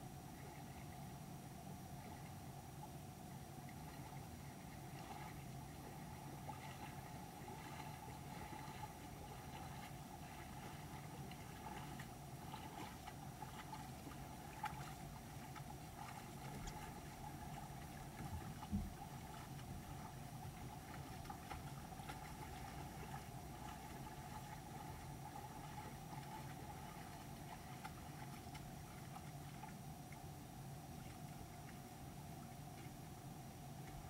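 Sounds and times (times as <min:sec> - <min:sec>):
faint splashing of wading animals: 0:00.0 - 0:34.0
creek water running over stones: 0:06.2 - 0:29.9
dull low thump: 0:18.6 - 0:19.0.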